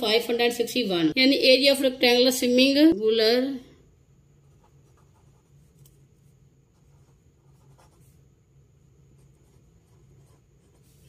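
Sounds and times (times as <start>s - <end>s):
low room hum: 0.0s - 11.0s
pen scratching on paper: 4.4s - 8.3s, 9.1s - 11.0s.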